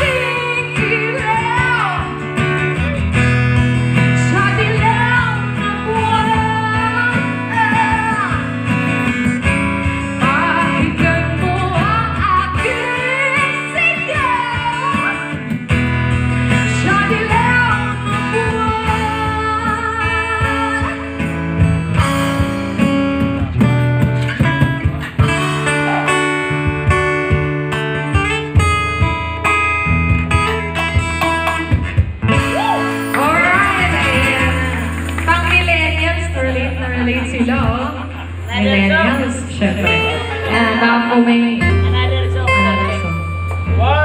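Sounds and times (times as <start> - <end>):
woman singing with vibrato: 0.0 - 2.3, 4.1 - 8.7, 10.0 - 15.3, 16.5 - 21.3, 32.4 - 43.0
strummed acoustic guitar: 0.0 - 44.0.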